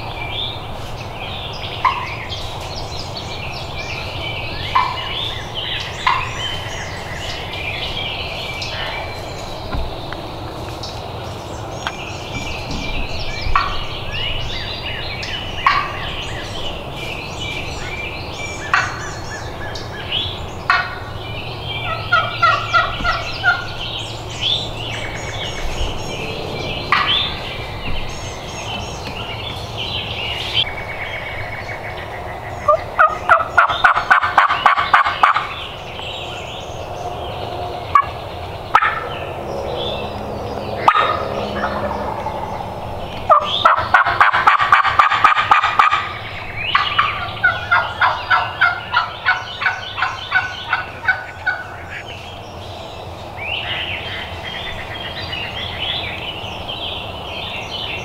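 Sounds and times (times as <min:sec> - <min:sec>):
songbirds chirping and singing: 0:00.0 - 0:58.0
wild turkey yelping: 0:01.8 - 0:02.2, 0:04.7 - 0:07.4, 0:13.5 - 0:13.8, 0:15.6 - 0:16.5, 0:20.7 - 0:21.1, 0:21.8 - 0:23.8, 0:32.6 - 0:35.6, 0:37.9 - 0:39.4, 0:40.8 - 0:52.1.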